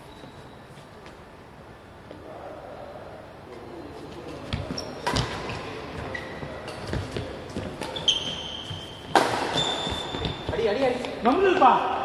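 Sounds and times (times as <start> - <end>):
shoes squeaking on court: 4.0 - 11.1
rackets hitting shuttlecock: 5.0 - 5.6, 6.6 - 10.5.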